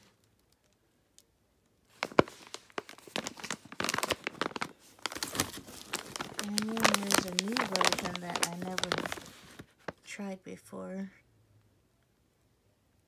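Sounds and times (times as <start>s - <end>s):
plastic packaging crinkling: 1.9s - 10.1s.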